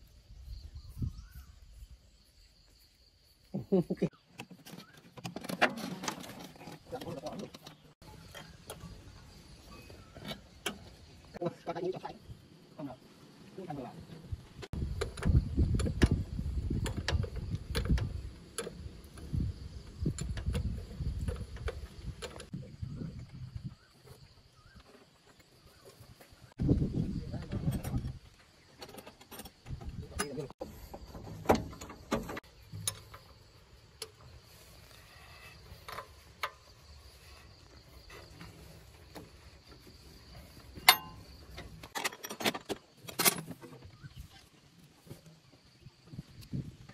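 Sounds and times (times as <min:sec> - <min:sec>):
low rumbling handling noise: 0:14.0 - 0:44.4.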